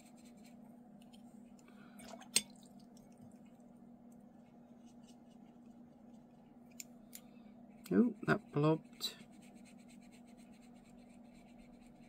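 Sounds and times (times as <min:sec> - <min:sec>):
brush on wet paper: 0:00.0 - 0:00.6, 0:07.7 - 0:12.0.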